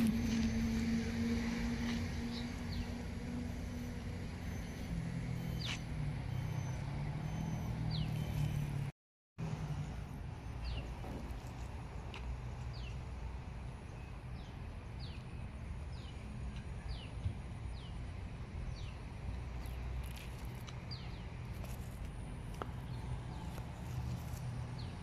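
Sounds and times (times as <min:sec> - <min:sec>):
low traffic rumble: 0:00.0 - 0:25.0
bird chirps: 0:04.4 - 0:08.8.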